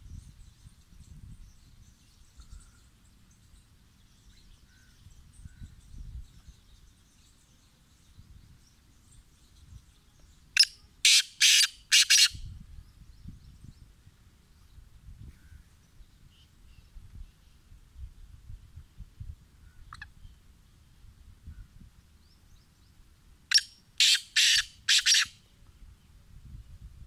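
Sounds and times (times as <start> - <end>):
francolin rasping call: 10.6 - 12.5, 23.5 - 25.5.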